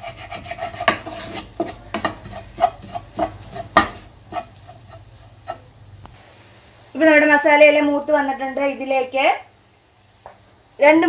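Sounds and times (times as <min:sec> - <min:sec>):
utensil scraping a pan: 0:00.0 - 0:05.8
low sizzle: 0:00.0 - 0:11.0.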